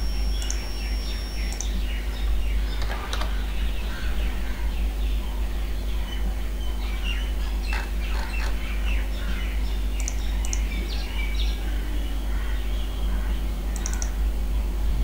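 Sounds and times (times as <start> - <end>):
birds chirping: 0.0 - 14.2
low hum: 0.0 - 15.0
sharp clicks: 0.3 - 0.8, 1.4 - 1.8, 10.0 - 10.8, 13.7 - 14.2.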